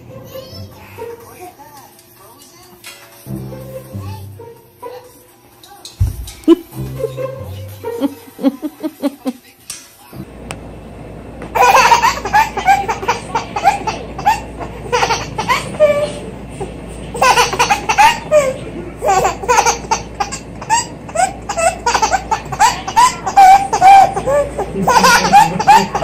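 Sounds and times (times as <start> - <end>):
baby laughing: 6.4 - 9.4, 11.6 - 26.0.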